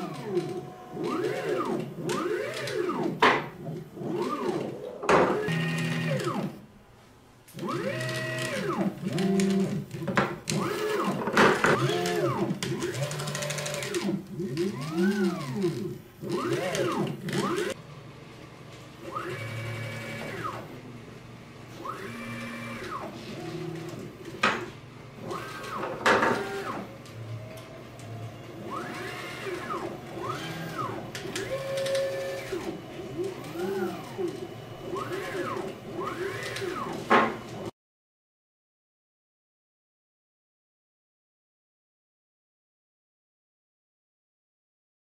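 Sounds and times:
stepper motors whining: 0:00.0 - 0:06.5, 0:07.6 - 0:17.8, 0:25.2 - 0:37.6.

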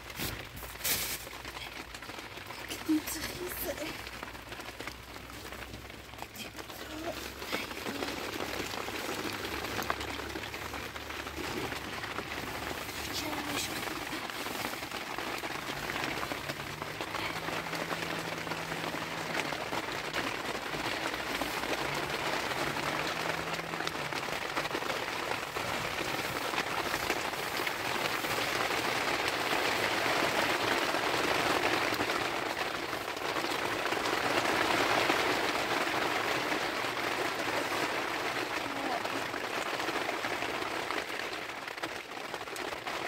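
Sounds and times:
heavy rain on tent fabric: 0:00.0 - 0:43.0.

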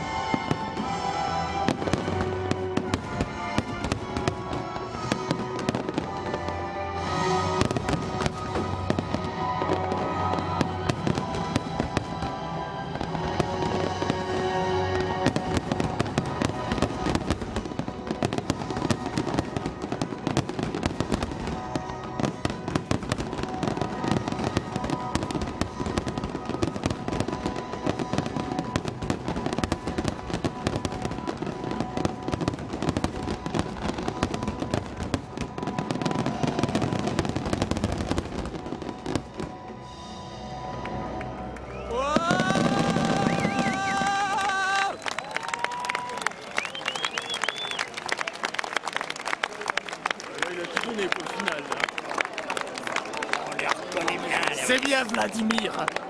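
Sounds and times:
soundtrack music: 0:00.0 - 0:44.8
fireworks bangs and crackles: 0:00.0 - 0:56.0.

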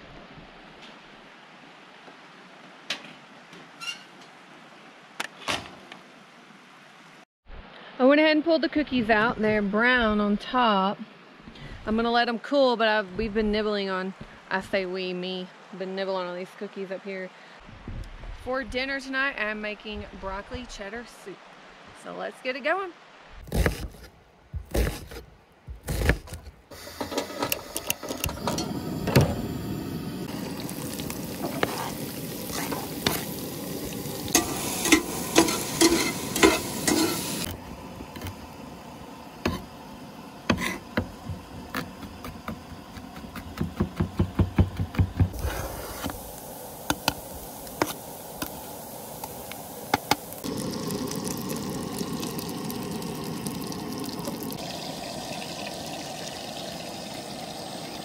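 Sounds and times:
knife chopping on plastic board: 0:23.5 - 0:26.5, 0:40.5 - 0:45.4
butter sizzling in a pot: 0:28.4 - 0:37.5, 0:44.9 - 0:58.0.

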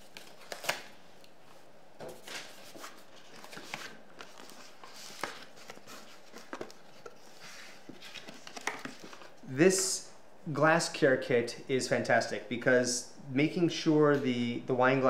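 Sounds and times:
hands handling cardboard packaging: 0:02.0 - 0:09.4
paper rustling: 0:02.0 - 0:09.4.

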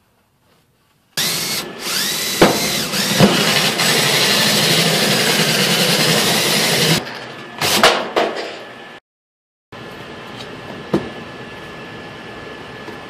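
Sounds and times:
drill hole saw cutting metal: 0:01.2 - 0:07.0.

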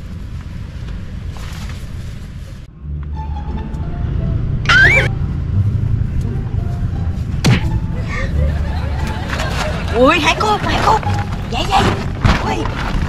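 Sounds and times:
vehicle engine rumbling: 0:00.0 - 0:13.0
loud wavering whistle: 0:04.6 - 0:05.1.

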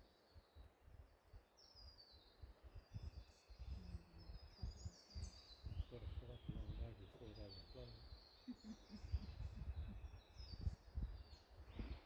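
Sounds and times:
faint bird chirping: 0:00.0 - 0:12.0.

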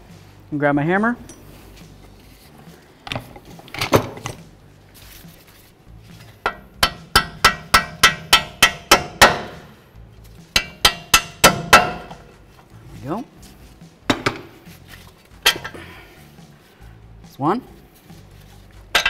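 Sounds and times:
hammer striking metal bolts: 0:06.4 - 0:09.7, 0:10.5 - 0:12.4, 0:14.1 - 0:14.5, 0:15.4 - 0:15.7.

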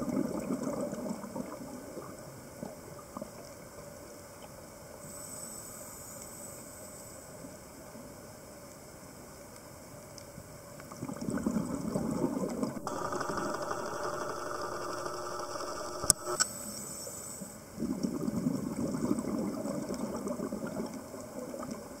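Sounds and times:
faint hiss: 0:01.8 - 0:11.0, 0:12.8 - 0:22.0
sharp click: 0:12.8 - 0:16.5.

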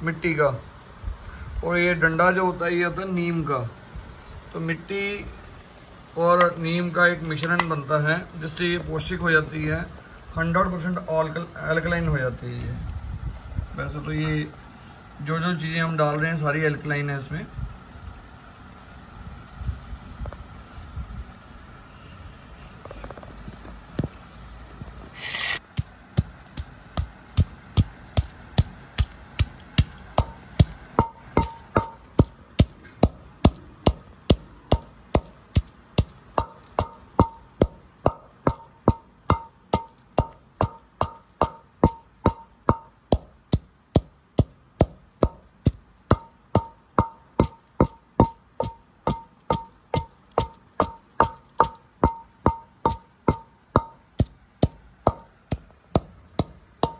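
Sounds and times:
short scraping burst: 0:25.1 - 0:25.6
pestle pounding in clay pot: 0:25.6 - 0:56.9.

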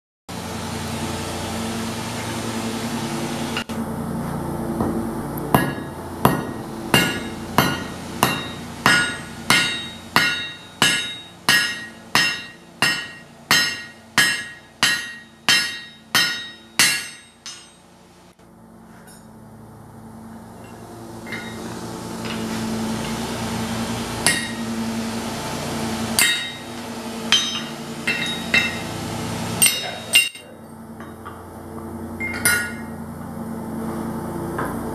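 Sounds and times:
forge running: 0:00.3 - 0:34.9
hammer ringing on anvil: 0:05.5 - 0:17.9, 0:20.6 - 0:22.4, 0:24.2 - 0:24.7, 0:26.2 - 0:26.7, 0:27.3 - 0:28.9, 0:29.6 - 0:31.4, 0:32.2 - 0:33.0.

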